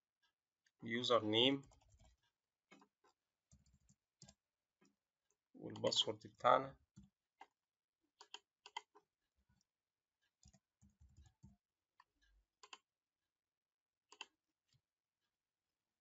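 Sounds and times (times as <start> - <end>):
mouse clicks: 12.6 - 12.8, 14.1 - 14.3.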